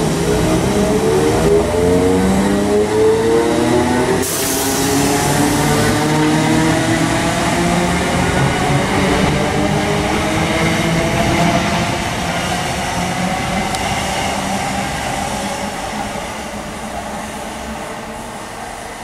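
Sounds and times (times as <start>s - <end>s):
wheel and rail noise: 0.0s - 19.0s.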